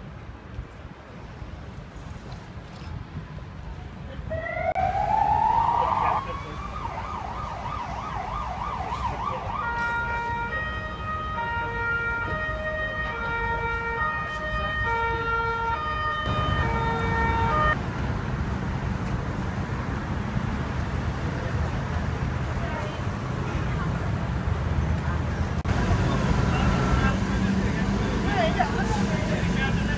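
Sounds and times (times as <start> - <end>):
city traffic rumble: 0.0 - 29.9
emergency siren wailing: 4.3 - 17.8
held stepping siren tones: 4.3 - 17.8.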